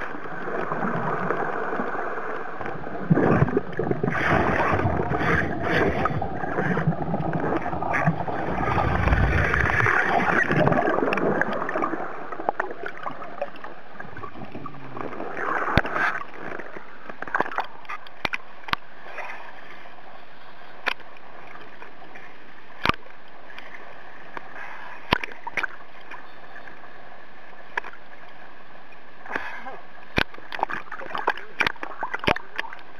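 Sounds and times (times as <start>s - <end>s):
water bubbles rushing underwater: 0.0s - 17.9s
deep rumble: 4.7s - 11.0s.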